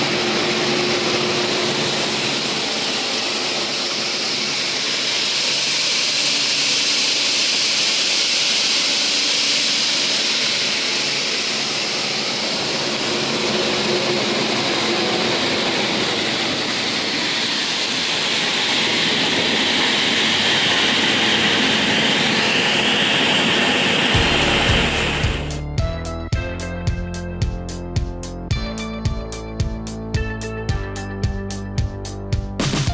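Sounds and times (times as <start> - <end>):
saw machine whirring: 0.0 - 25.7
music: 24.2 - 32.9.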